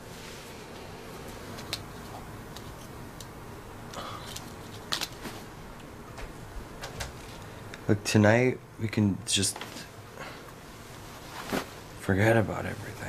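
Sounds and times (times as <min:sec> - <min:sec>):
low room hiss: 0:00.0 - 0:13.0
soft clicks and rustles: 0:00.8 - 0:03.4.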